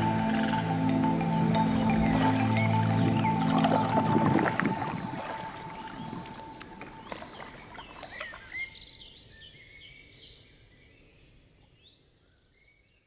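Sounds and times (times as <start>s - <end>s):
music: 0.0s - 6.9s
birds chirping: 0.0s - 10.2s.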